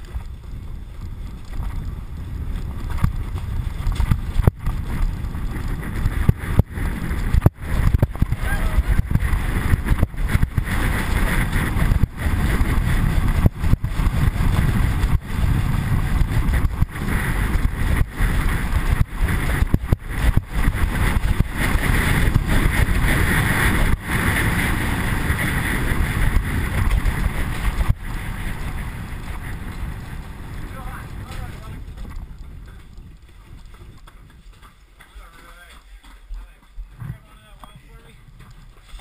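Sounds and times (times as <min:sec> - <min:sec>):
sled runners scraping on ice: 0:00.0 - 0:39.0
wind over microphone: 0:00.0 - 0:39.0.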